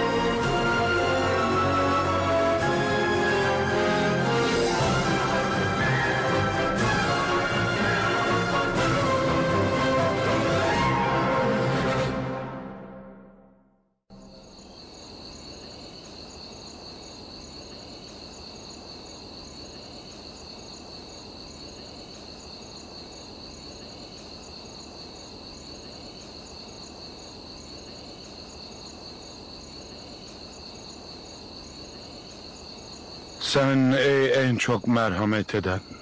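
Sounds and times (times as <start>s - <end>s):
crickets chirping: 14.1s - 36.0s.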